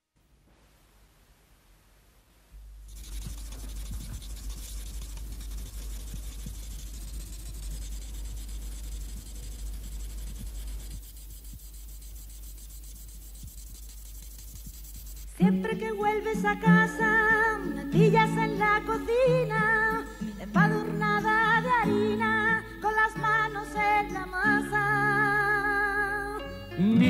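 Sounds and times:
pencil scratching on paper: 2.9s - 15.4s.

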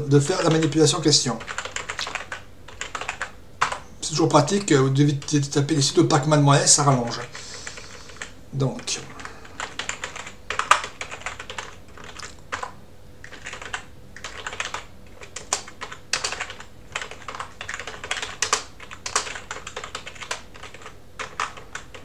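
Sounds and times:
typing on computer keyboard: 0.4s - 3.9s, 7.6s - 8.3s, 9.2s - 22.0s.

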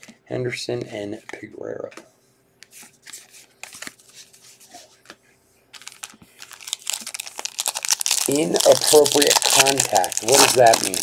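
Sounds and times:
cards being shuffled: 5.8s - 11.0s
foil wrapper crinkling: 5.8s - 11.0s.

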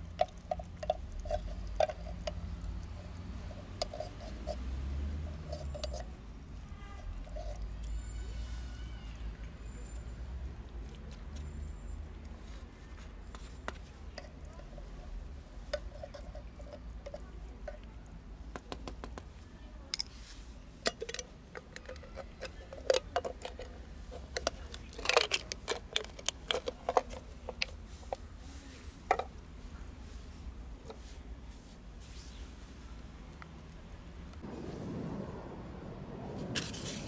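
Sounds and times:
cats chewing wet food: 0.0s - 8.1s, 9.0s - 19.1s
low steady rumble: 26.6s - 37.0s.

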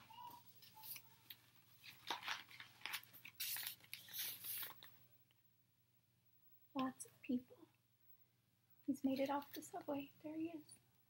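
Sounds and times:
book pages rustling: 0.0s - 5.0s.

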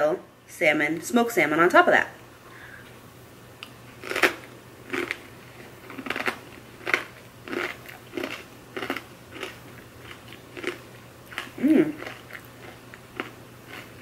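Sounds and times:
person chewing crunchy cracker: 4.0s - 14.0s.

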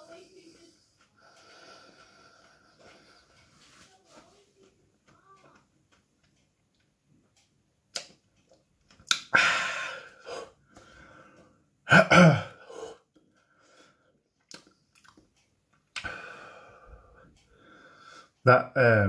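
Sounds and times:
man's mouth and breath sounds: 9.0s - 10.6s, 15.9s - 16.3s
forceful breath out: 9.3s - 11.4s
man coughing: 11.9s - 12.7s.

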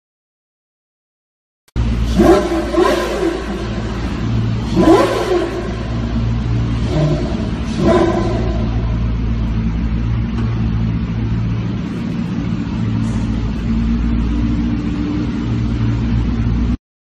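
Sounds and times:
car engine idling: 1.8s - 16.8s.

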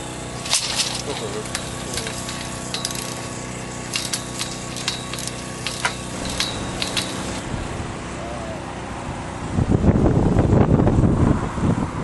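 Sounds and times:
steady engine hum: 0.0s - 12.0s
metal tubing clinking: 0.4s - 7.4s.

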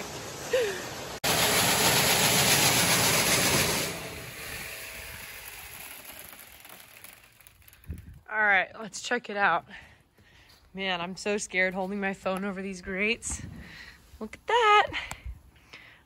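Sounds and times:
grain auger with beans pouring: 1.2s - 8.2s.

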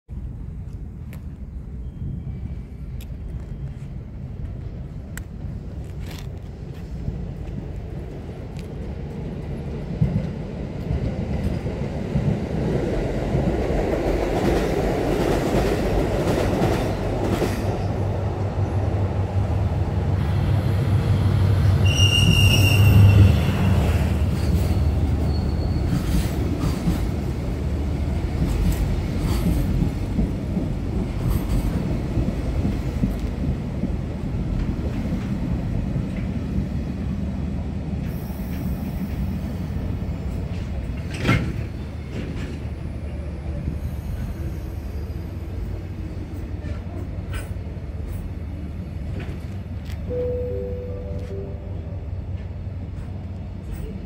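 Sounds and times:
diesel locomotive engine passing: 0.2s - 54.0s
high squeal: 21.8s - 26.4s.

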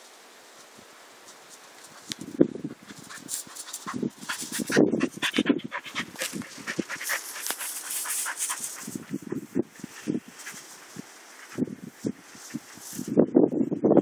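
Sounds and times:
rustling of long grass: 0.0s - 14.0s
dog panting: 2.9s - 9.7s.

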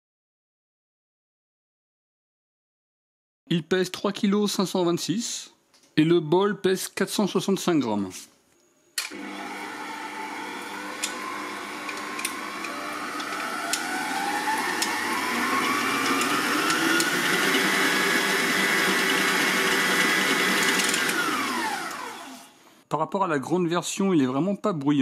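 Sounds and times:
stand mixer motor whining: 9.1s - 22.6s.

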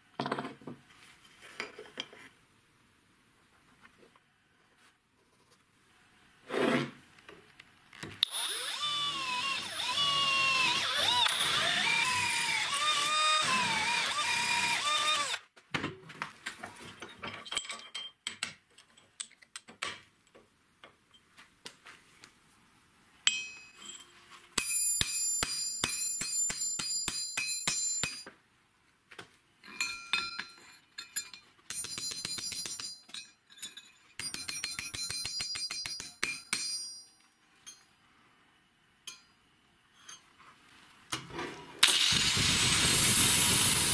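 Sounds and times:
electric power tool on steel: 8.2s - 15.4s, 41.8s - 43.9s.

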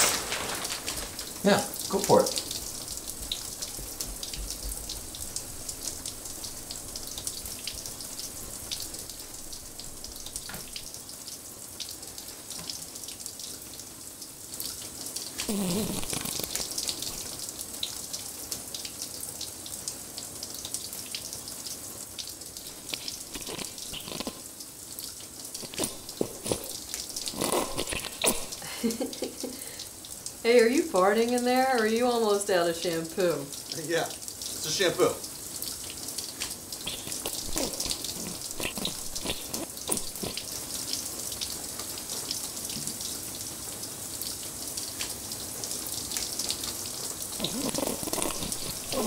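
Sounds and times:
shower spray running: 0.0s - 2.9s, 15.4s - 17.3s, 22.6s - 24.4s, 25.6s - 29.8s, 36.7s - 40.5s, 47.4s - 49.0s
wet sputter: 15.4s - 17.3s, 22.6s - 24.5s, 25.5s - 29.8s, 36.7s - 40.6s, 47.3s - 49.0s.

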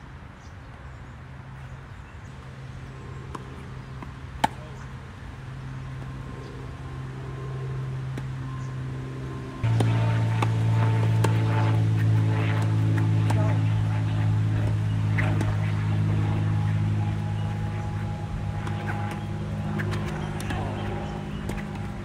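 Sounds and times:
low engine hum: 2.2s - 22.0s
distant racket hit: 3.2s - 4.9s, 9.6s - 22.0s
tennis racket hitting ball: 3.2s - 4.9s, 9.6s - 22.0s.

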